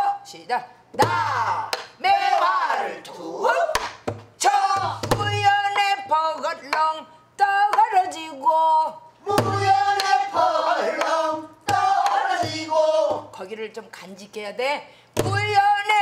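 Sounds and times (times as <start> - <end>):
woman singing: 5.1 - 9.0, 15.3 - 16.0.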